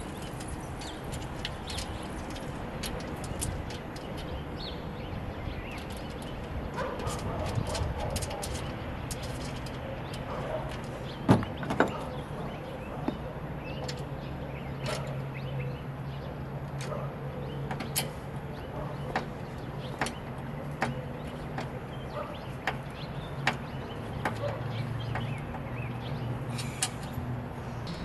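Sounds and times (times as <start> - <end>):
steady low hum: 27.7 - 28.0.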